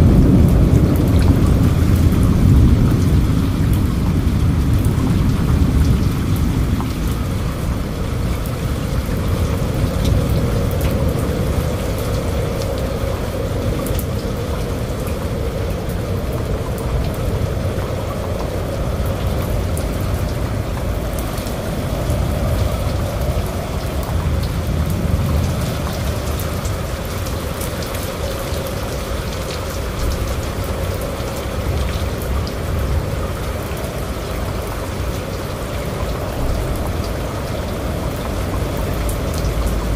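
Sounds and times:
heavy rain falling: 0.0 - 39.9.

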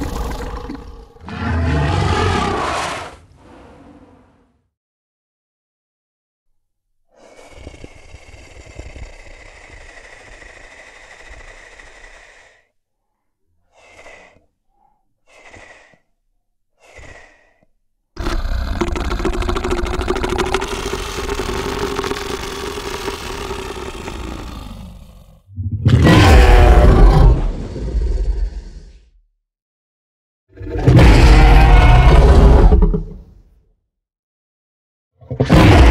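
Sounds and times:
dinosaur roar: 0.0 - 4.4, 18.2 - 29.1, 30.5 - 33.3, 35.2 - 35.9
dinosaur breathing: 7.1 - 25.8, 26.4 - 29.2.

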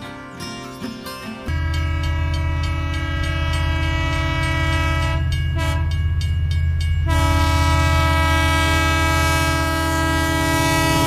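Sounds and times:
toy train horn: 1.5 - 6.0, 7.1 - 11.0.

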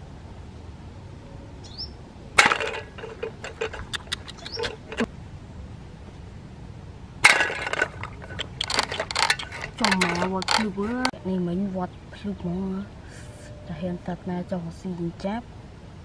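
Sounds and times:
crackling clatters: 2.4 - 5.1, 7.2 - 11.2
sharp clicks: 3.0 - 5.1, 7.6 - 11.1.

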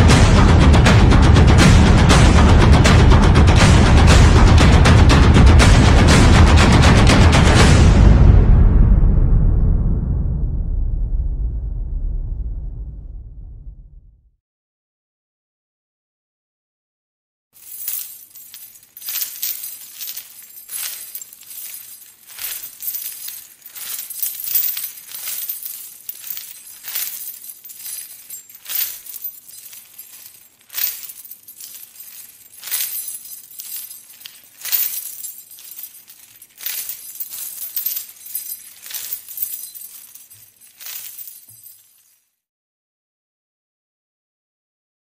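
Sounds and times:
bright clinking hits: 17.6 - 42.1.

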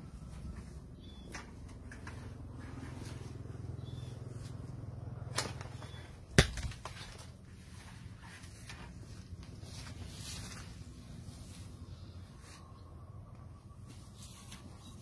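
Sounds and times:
low steady hum: 0.0 - 15.0
fruit thudding on ground: 5.3 - 7.4
pole knocking fruit: 5.3 - 7.4.

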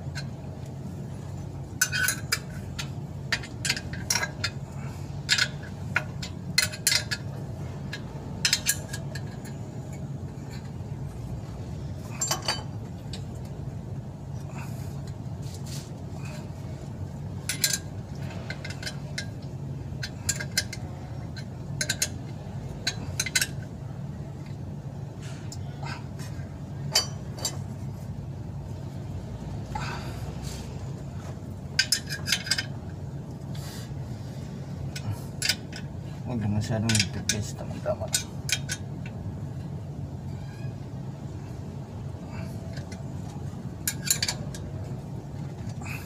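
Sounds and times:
steady low hum: 0.0 - 46.0
wrench clicking on metal bolts: 1.8 - 4.6, 5.2 - 10.8, 17.4 - 23.7, 31.8 - 32.8, 34.9 - 35.9, 36.6 - 39.2, 43.8 - 44.8.

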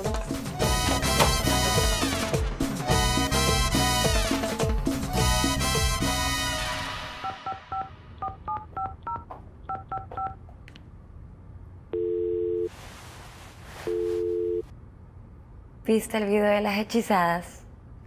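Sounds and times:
salsa music: 0.0 - 7.2
phone keypad beeps: 7.2 - 10.4
phone ringing tone: 7.2 - 10.4, 11.9 - 12.7, 13.9 - 14.7.

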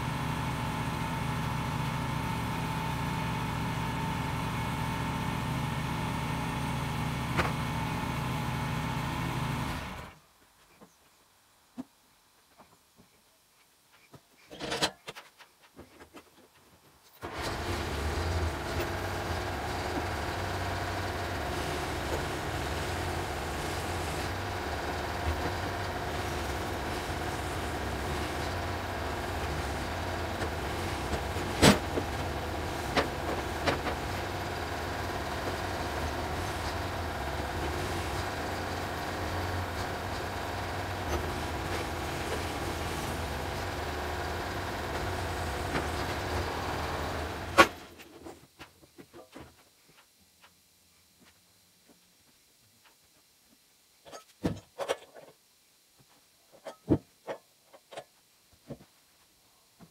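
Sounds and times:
tractor engine running: 0.0 - 10.1, 17.2 - 48.0.

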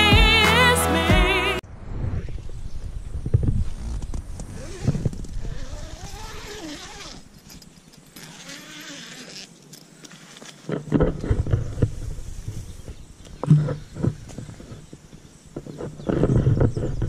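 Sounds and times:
song with singing voice: 0.0 - 1.6.

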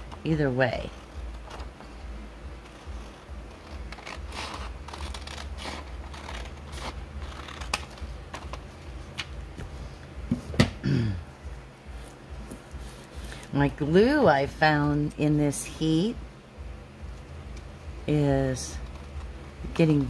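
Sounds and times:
scissors snipping paper: 3.6 - 8.6.

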